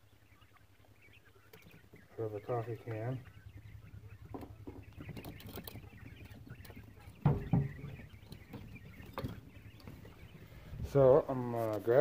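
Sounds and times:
quail clicking and pattering: 0:00.0 - 0:12.0
loud knocks: 0:07.1 - 0:08.1.

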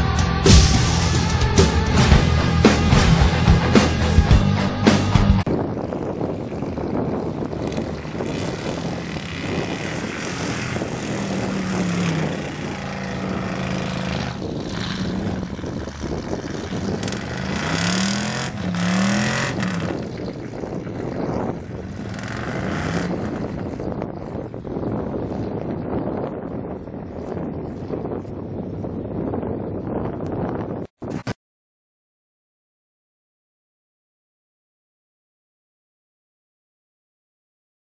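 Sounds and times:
truck engine revving: 0:00.3 - 0:24.1
rough churning of mud: 0:07.4 - 0:23.8.

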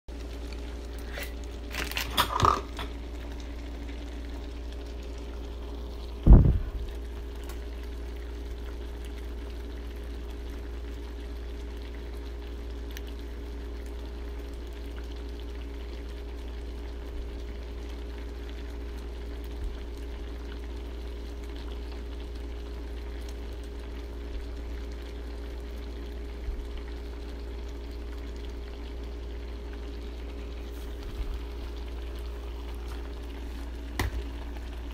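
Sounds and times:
low hum: 0:00.1 - 0:14.8
soup bubbling in a pot: 0:00.1 - 0:34.9
loud thump: 0:06.2 - 0:06.7.

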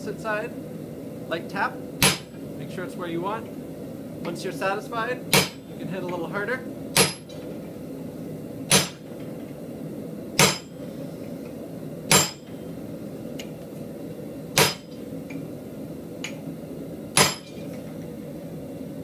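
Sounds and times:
hammer striking chisel into steel: 0:07.0 - 0:07.3, 0:08.7 - 0:09.0, 0:10.4 - 0:10.7, 0:12.1 - 0:12.4, 0:14.6 - 0:14.9, 0:17.2 - 0:17.6.

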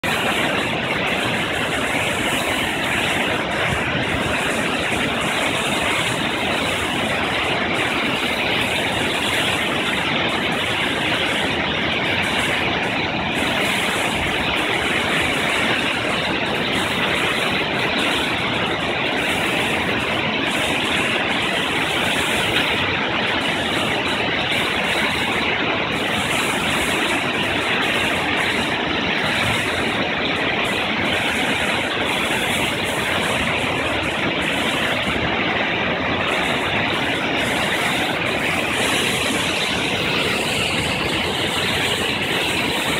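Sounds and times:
waterfall rushing: 0:00.0 - 0:42.9.

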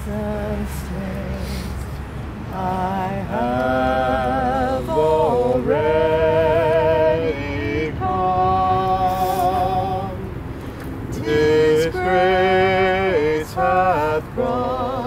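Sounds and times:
person singing slowly: 0:02.5 - 0:10.3, 0:11.2 - 0:15.0.

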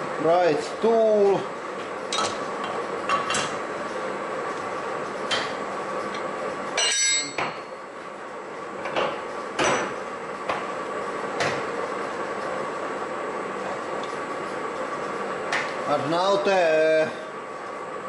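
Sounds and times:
steel tool holders clanking: 0:06.8 - 0:07.5.

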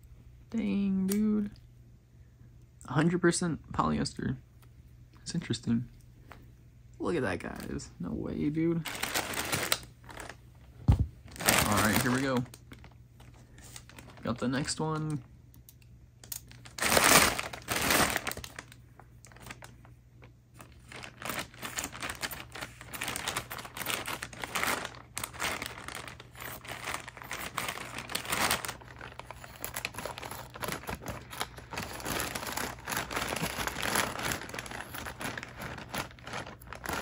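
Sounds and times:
plastic bag crinkling: 0:08.8 - 0:10.4, 0:11.2 - 0:15.3, 0:16.3 - 0:37.0.

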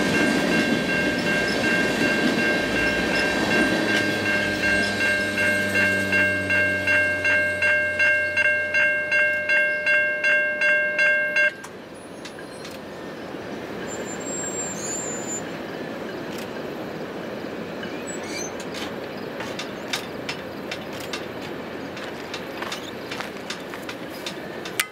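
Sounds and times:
railroad crossing bell ringing: 0:00.0 - 0:11.8
train cars rumbling past: 0:00.0 - 0:24.9.

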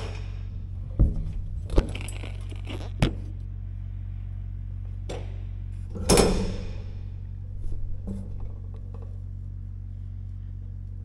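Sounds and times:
metal channel clanking on steel wall: 0:00.0 - 0:03.2, 0:05.1 - 0:09.2
steady low hum: 0:00.0 - 0:11.0.

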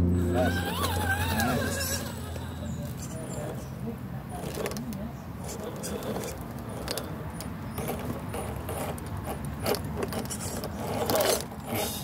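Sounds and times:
small electric motor and gearbox: 0:00.4 - 0:03.7, 0:04.3 - 0:12.0
clicking and rattling: 0:04.4 - 0:11.8.

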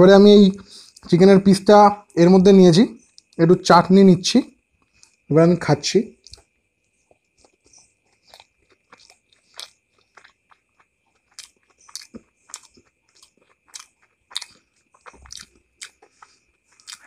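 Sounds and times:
person chewing close up: 0:04.8 - 0:05.3, 0:06.2 - 0:17.0.

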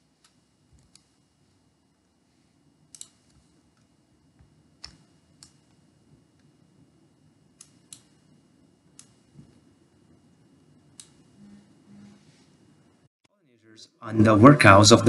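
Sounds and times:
low room noise: 0:00.0 - 0:15.0
computer mouse clicking: 0:00.2 - 0:01.2, 0:02.9 - 0:03.9, 0:04.8 - 0:05.8, 0:07.6 - 0:08.2, 0:09.0 - 0:09.3, 0:11.0 - 0:11.2.

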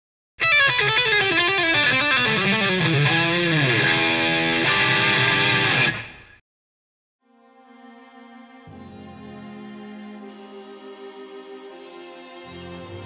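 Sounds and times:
guitar intro music: 0:00.4 - 0:06.4.

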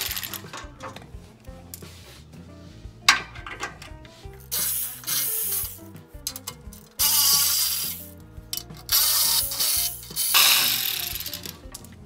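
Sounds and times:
ratchet wrench clicking: 0:00.0 - 0:00.8, 0:04.5 - 0:11.9
background music: 0:00.0 - 0:12.0.

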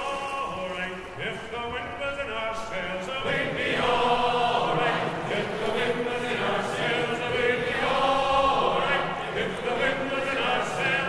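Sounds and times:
choral chant singing: 0:00.0 - 0:11.0.

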